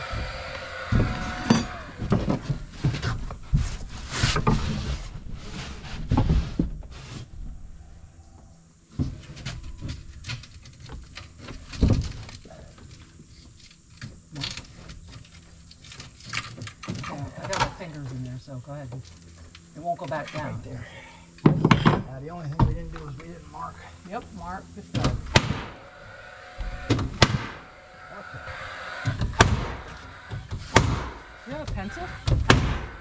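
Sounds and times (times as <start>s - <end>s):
machine hum: 0.0s - 33.0s
panels knocking on wooden framing: 29.2s - 33.0s.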